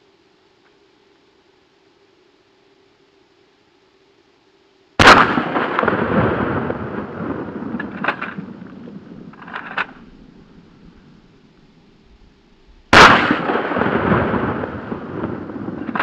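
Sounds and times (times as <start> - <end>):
shotgun blast with echo: 5.0 - 8.6, 12.9 - 16.0.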